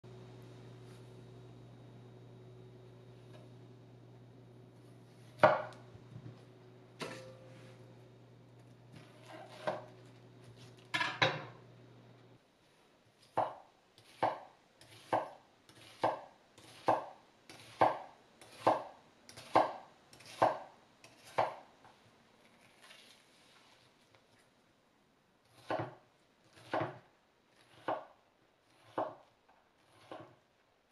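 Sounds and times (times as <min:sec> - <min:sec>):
knife cutting onion on wooden board: 0:04.9 - 0:05.9, 0:08.9 - 0:10.7, 0:13.2 - 0:21.7, 0:25.4 - 0:30.5.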